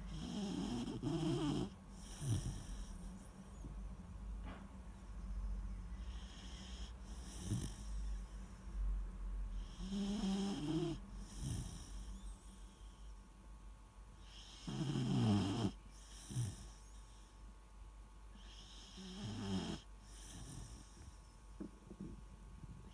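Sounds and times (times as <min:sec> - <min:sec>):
puppy snoring: 0:00.0 - 0:03.4, 0:06.0 - 0:08.4, 0:09.5 - 0:13.1, 0:14.2 - 0:17.3, 0:18.4 - 0:22.2.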